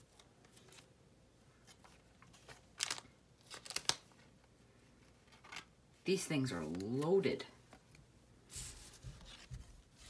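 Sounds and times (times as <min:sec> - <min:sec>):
cards rustling and clicking: 0:00.0 - 0:01.0, 0:01.6 - 0:05.8.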